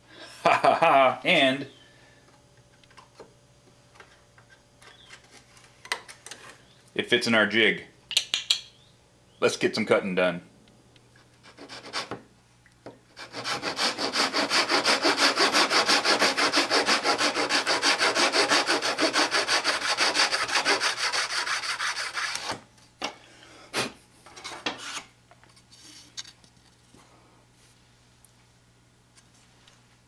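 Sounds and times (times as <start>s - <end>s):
hand saw cutting wood: 11.5s - 12.2s, 13.2s - 22.6s.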